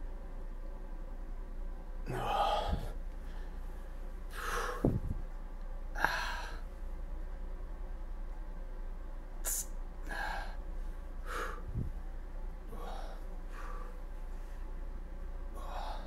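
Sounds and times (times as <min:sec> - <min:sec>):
low steady hum: 0:00.0 - 0:16.0
man breathing out hard: 0:04.3 - 0:05.0, 0:06.0 - 0:06.7, 0:11.2 - 0:11.9, 0:12.7 - 0:14.0, 0:15.6 - 0:16.0.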